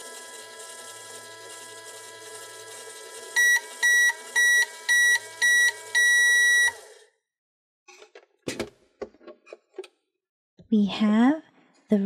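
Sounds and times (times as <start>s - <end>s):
toy microwave electronic hum: 0.0s - 7.1s.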